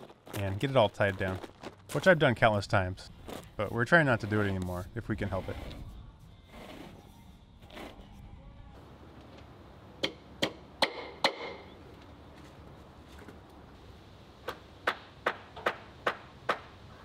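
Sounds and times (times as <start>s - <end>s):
hammer strikes: 10.0s - 11.6s.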